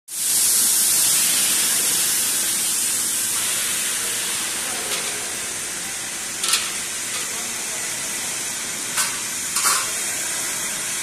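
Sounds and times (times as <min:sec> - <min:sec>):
optical sorter machine hissing: 0:00.1 - 0:11.0.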